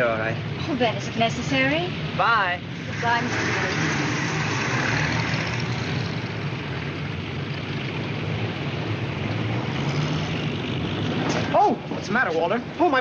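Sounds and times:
low engine hum: 0:00.0 - 0:13.0
cars passing hiss: 0:02.7 - 0:06.5.

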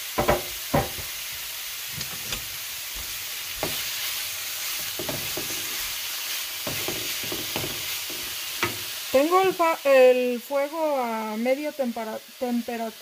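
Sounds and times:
beef sizzling in oil: 0:00.0 - 0:13.0
wooden spoon knocking in pan: 0:00.2 - 0:01.1, 0:03.0 - 0:03.9, 0:04.8 - 0:05.8, 0:06.6 - 0:08.9.

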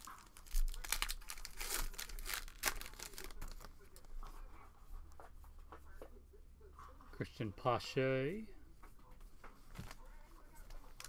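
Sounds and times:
card pack wrapper tearing and crinkling: 0:00.0 - 0:03.7.

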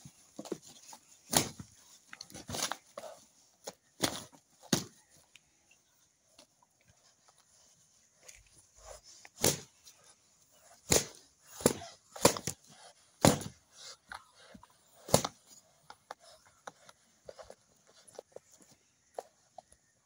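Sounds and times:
wings whacking: 0:01.2 - 0:03.2, 0:09.4 - 0:09.8, 0:10.7 - 0:13.6.

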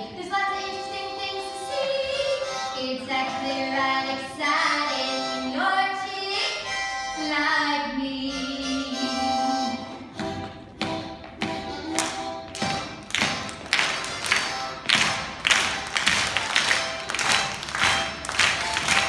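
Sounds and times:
live stage music: 0:08.3 - 0:19.0.

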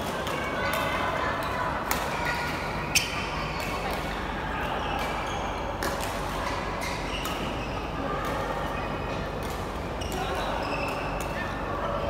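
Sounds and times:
murmur of voices: 0:00.0 - 0:12.0
badminton rackets hitting shuttlecock: 0:00.2 - 0:04.2, 0:05.8 - 0:07.6, 0:09.4 - 0:11.4.

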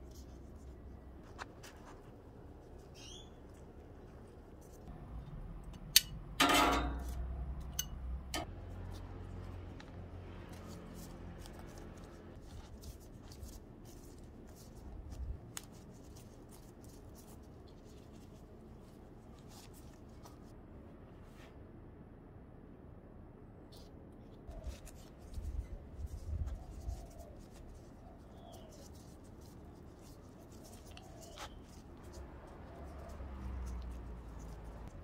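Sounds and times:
bread crust crackling: 0:08.6 - 0:20.6, 0:24.5 - 0:35.0
gloved hands rustling: 0:08.7 - 0:20.6, 0:23.8 - 0:35.0.

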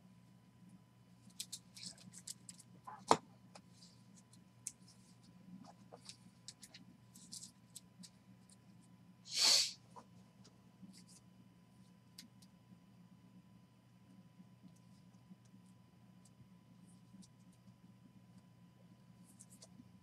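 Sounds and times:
cards rustling and clicking: 0:01.3 - 0:03.2, 0:05.9 - 0:08.2
short breathy hiss: 0:09.3 - 0:09.8.

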